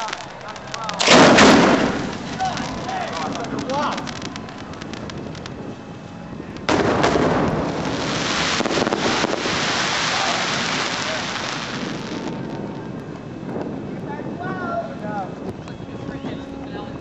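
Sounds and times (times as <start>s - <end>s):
firework bang: 0.0s - 5.7s, 6.5s - 13.1s
firework crackling: 0.0s - 13.9s.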